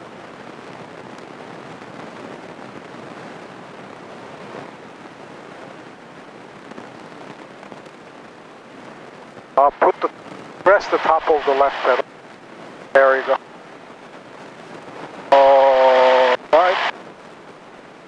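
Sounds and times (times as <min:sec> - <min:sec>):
light airplane cabin engine noise: 0:09.6 - 0:12.1, 0:12.8 - 0:13.5, 0:14.1 - 0:16.9.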